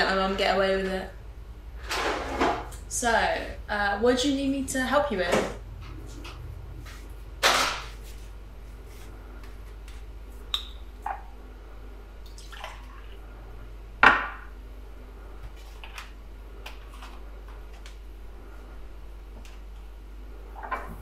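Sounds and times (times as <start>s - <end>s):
steady low hum: 0.0s - 21.0s
liquid pouring into a glass: 12.2s - 13.2s.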